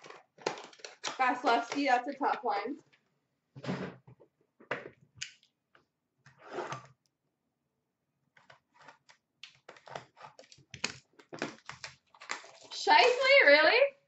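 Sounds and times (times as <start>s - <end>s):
plastic wrapping being torn: 0.0s - 1.9s, 8.8s - 13.3s.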